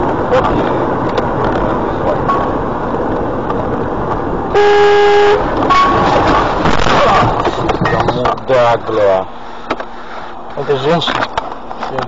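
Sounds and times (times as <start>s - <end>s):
car engine and road noise: 0.0s - 12.0s
car horn: 4.5s - 6.4s.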